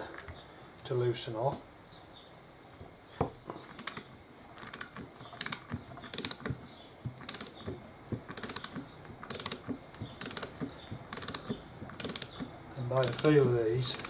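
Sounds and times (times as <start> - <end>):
socket ratchet clicking: 3.6 - 14.0.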